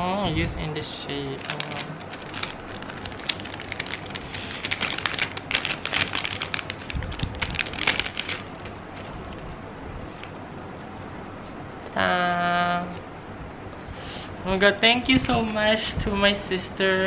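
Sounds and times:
plastic sleeve crinkling: 0:01.3 - 0:09.5.

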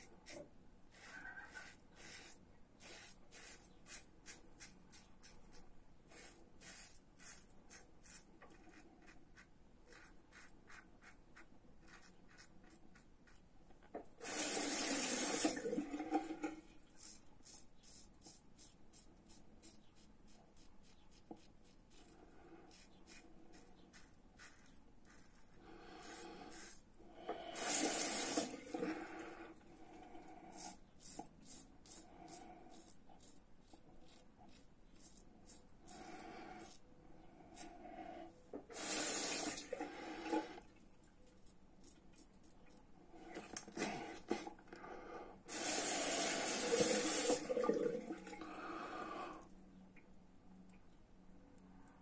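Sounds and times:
razor scraping stubble: 0:00.2 - 0:13.4, 0:22.7 - 0:26.9.

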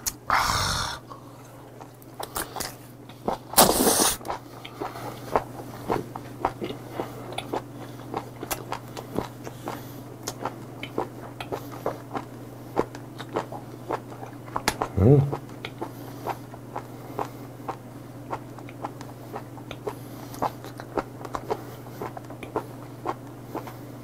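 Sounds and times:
wet chewing clicks and smacks: 0:01.8 - 0:23.8
man slurping loudly: 0:03.6 - 0:04.2.

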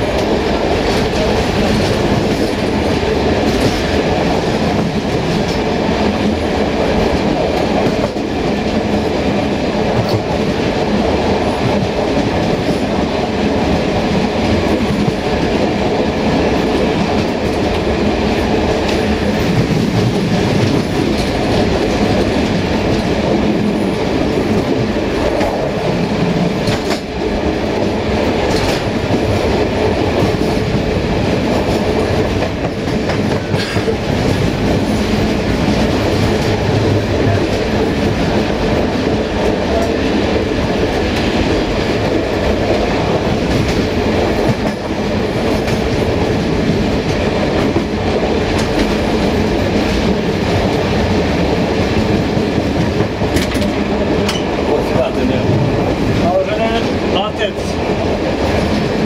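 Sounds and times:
train wheels rumbling on rails: 0:00.0 - 0:59.0
train wheel clicks: 0:16.3 - 0:59.0.

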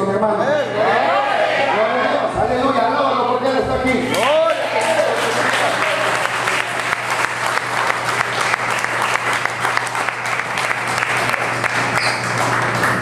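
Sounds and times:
congregation clapping: 0:04.1 - 0:13.0.

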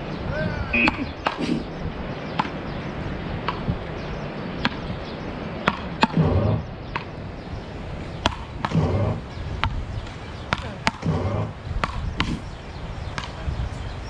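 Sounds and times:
wooden paddles hitting ball: 0:02.4 - 0:02.6, 0:03.4 - 0:03.8, 0:05.6 - 0:07.2, 0:08.2 - 0:12.4, 0:13.2 - 0:13.4.

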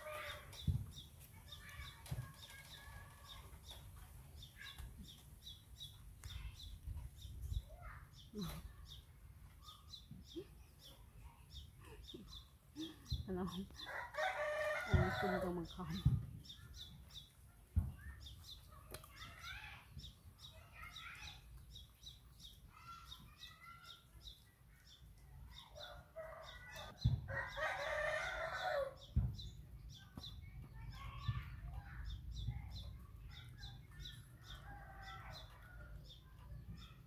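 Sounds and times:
rooster crowing: 0:13.9 - 0:15.4, 0:27.3 - 0:28.9.

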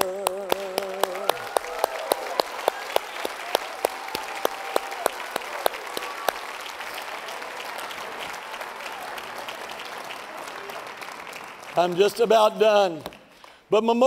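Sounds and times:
crowd applauding: 0:00.0 - 0:13.7
steady clap beat: 0:00.0 - 0:13.7.

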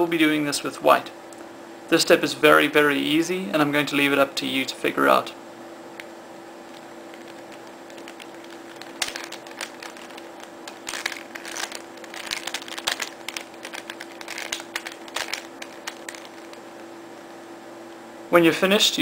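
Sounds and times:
faint steady hum: 0:00.0 - 0:19.0
plastic puzzle clicking and clacking: 0:07.2 - 0:16.6.

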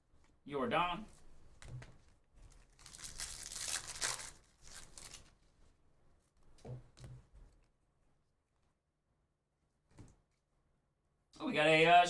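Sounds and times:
cards being flipped and shuffled: 0:01.5 - 0:05.4.

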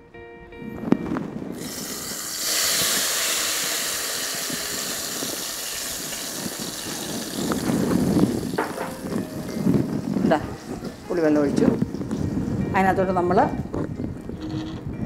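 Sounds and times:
liquid sizzling in hot oil: 0:01.6 - 0:09.2.

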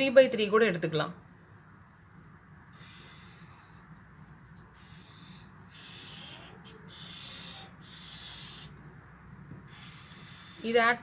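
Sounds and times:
marker pen scratching on paper: 0:02.8 - 0:08.8, 0:09.6 - 0:11.0.

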